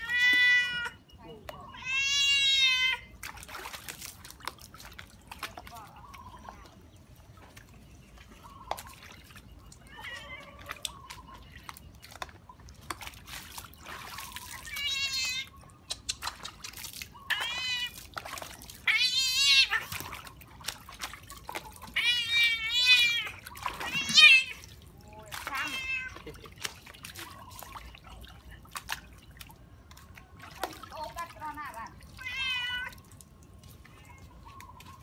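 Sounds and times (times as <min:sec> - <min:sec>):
cat meowing in protest: 0:00.0 - 0:01.0, 0:01.6 - 0:03.1, 0:09.8 - 0:10.9, 0:17.3 - 0:18.0, 0:18.8 - 0:19.9, 0:21.9 - 0:24.7, 0:25.3 - 0:26.2, 0:32.1 - 0:33.0
water splashing in a basin: 0:00.0 - 0:35.0.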